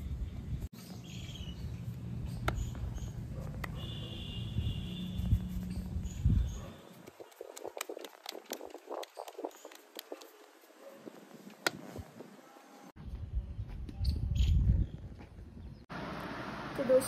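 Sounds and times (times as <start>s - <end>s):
hands patting dough: 6.9s - 10.8s.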